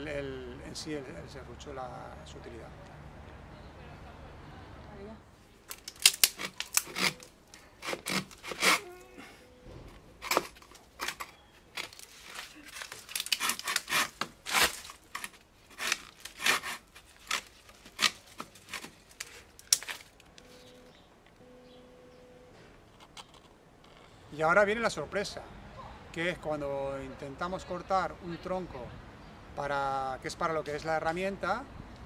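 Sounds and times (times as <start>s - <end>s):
saw rasping through wood: 6.1s - 9.0s, 11.8s - 18.9s.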